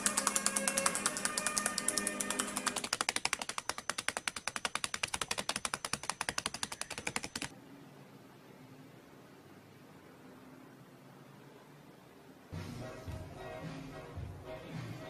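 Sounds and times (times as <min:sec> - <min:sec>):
bird pecking paper: 0:00.0 - 0:07.5.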